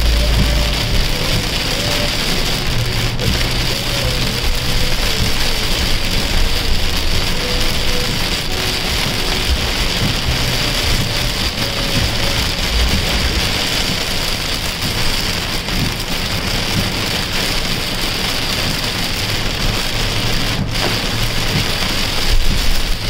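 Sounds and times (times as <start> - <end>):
car rumbling on wet road: 0.0 - 23.0
heavy rain on car roof: 0.0 - 23.0.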